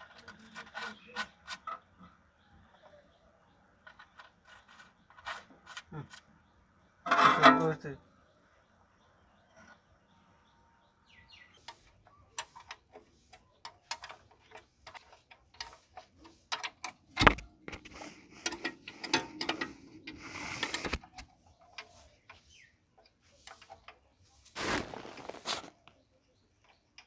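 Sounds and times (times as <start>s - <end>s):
metal tools clinking on metal: 7.0s - 7.8s.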